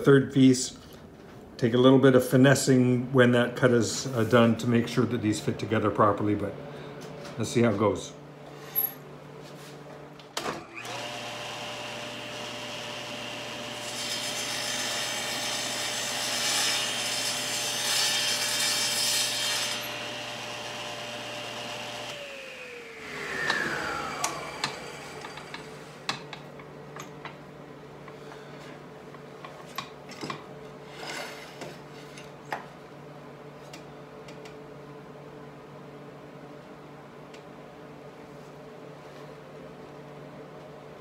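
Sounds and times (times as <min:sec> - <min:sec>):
table saw cutting wood: 0:10.6 - 0:26.3
saw winding down whine: 0:10.7 - 0:13.9, 0:19.7 - 0:25.9.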